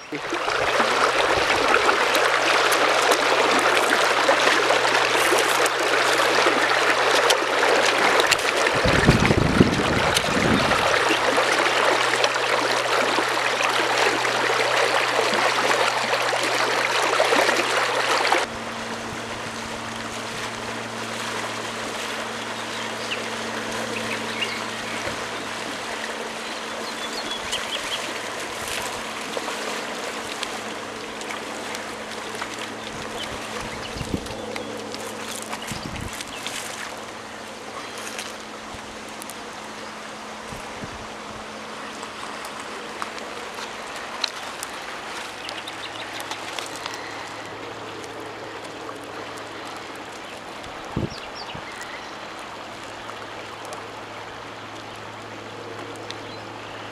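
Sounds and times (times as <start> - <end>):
river water rushing over gravel: 0.0 - 56.9.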